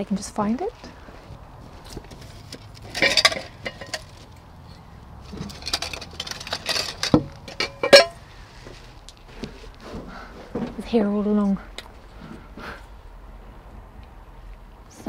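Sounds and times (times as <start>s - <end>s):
kitchen items rustling and clinking: 1.7s - 10.8s.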